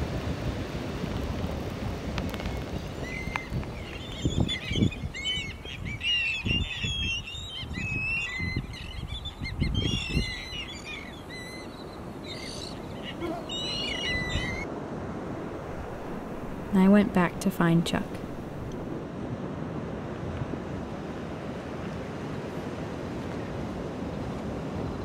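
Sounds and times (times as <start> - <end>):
wind gusts on microphone: 0.0 - 25.0
seabirds calling: 2.4 - 14.7, 15.3 - 19.0.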